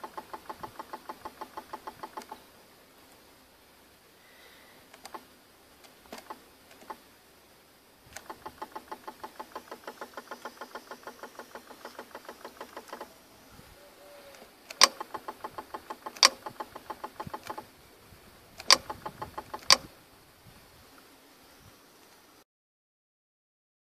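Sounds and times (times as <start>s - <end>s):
compressor clutch ticking: 14.7s - 17.6s, 18.6s - 19.9s
sharp loud clutch clicks: 14.7s - 17.6s, 18.6s - 19.9s.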